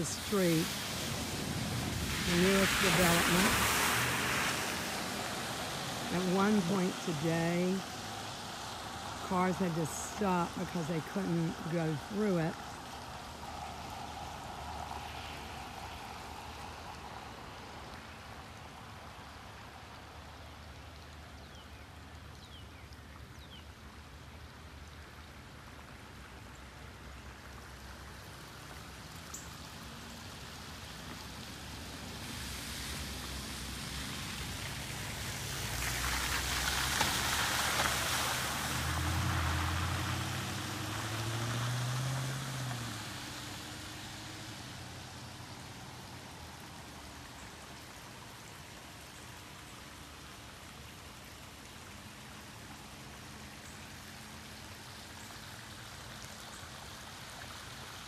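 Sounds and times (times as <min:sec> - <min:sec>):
car driving through floodwater: 0:00.0 - 0:58.0
water flowing across road: 0:00.0 - 0:58.0.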